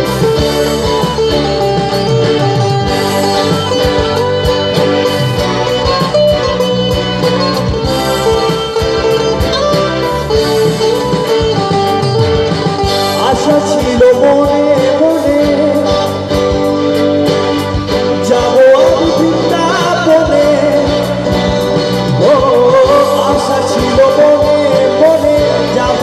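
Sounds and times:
steady beat: 0.0s - 24.5s
bass guitar: 0.0s - 26.0s
electric guitars: 0.0s - 26.0s
keyboard: 0.0s - 26.0s
person singing: 13.0s - 16.5s, 18.0s - 26.0s.

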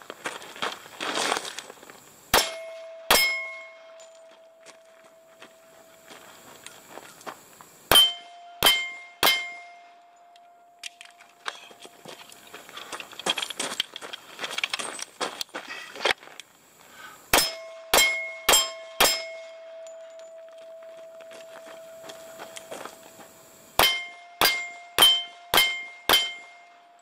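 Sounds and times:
footsteps crunching on gravel: 0.0s - 2.1s, 3.6s - 7.8s, 10.9s - 17.1s, 19.6s - 23.7s
pistol shots: 2.3s - 3.7s
steel target ringing: 2.3s - 5.8s, 7.9s - 10.8s, 17.3s - 23.0s, 23.8s - 27.0s.

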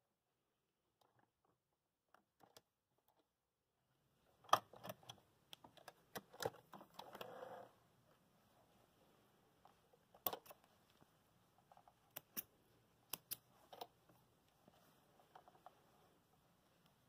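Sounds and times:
cloth rustling: 12.6s - 17.0s.

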